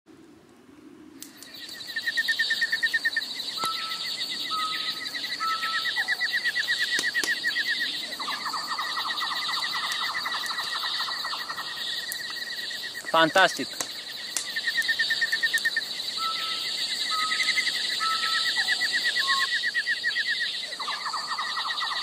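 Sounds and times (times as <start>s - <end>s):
crickets chirping: 0.8s - 22.0s
sharp clicks: 6.9s - 7.4s, 13.0s - 15.7s.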